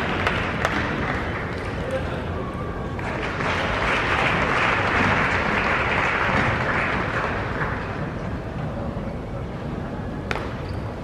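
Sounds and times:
crowd applauding: 0.0 - 1.8, 3.0 - 8.2.

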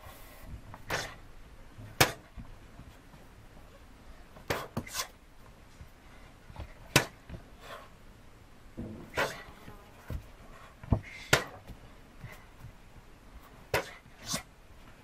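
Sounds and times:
sharp slaps of punches and kicks: 1.9 - 2.4, 6.8 - 7.4, 10.9 - 11.8, 13.7 - 14.4.

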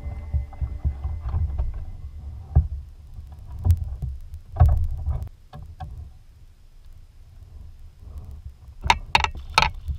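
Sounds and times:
low rumble: 0.0 - 5.4.

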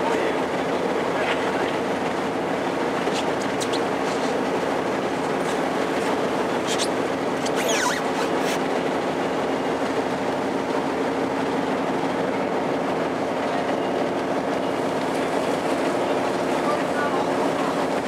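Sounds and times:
boat engine drone: 0.0 - 18.0
wind: 0.0 - 18.0.

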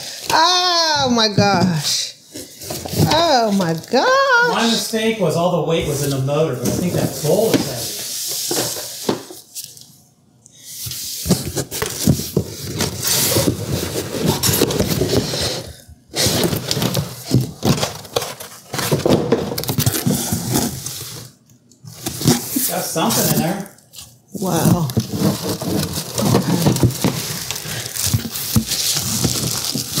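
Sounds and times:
cardboard rustling and scraping: 5.8 - 9.8, 10.7 - 30.0
plastic bags crinkling: 22.5 - 30.0.

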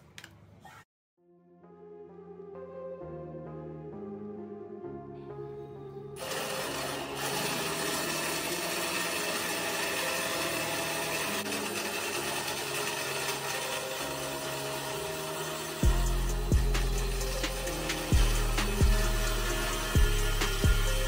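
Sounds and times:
motor and gears grinding whir: 6.2 - 21.0.

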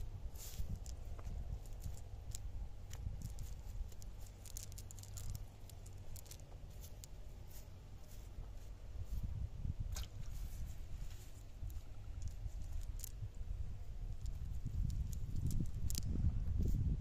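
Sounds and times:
wet net rustling and crackling: 0.0 - 9.3, 9.9 - 16.1
low steady rumble: 0.0 - 17.0
small clicks: 0.4 - 7.6, 11.6 - 13.4, 14.0 - 16.1.

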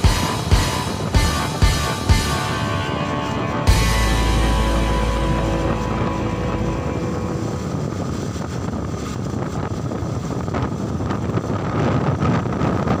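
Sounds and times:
road noise: 0.0 - 10.1
wind rushing over microphone: 0.0 - 13.0.

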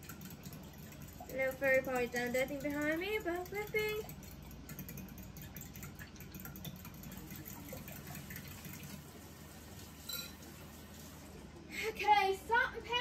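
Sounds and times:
fork ticking against glass bowl: 0.0 - 8.9
liquid sloshing: 0.0 - 11.4.

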